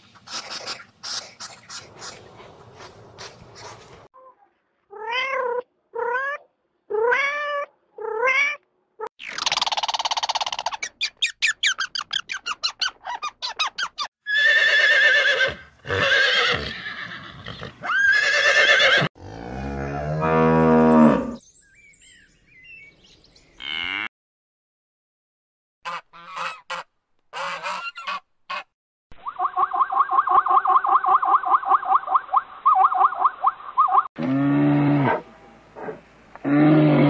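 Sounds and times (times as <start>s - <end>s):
horse whinnying: 14.3s - 19.1s
cow mooing: 34.2s - 35.3s.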